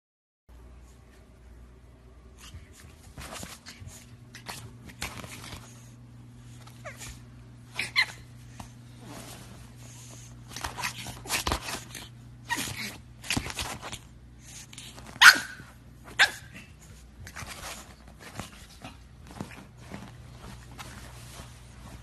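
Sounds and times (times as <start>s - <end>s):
dog barking: 15.2s - 15.6s.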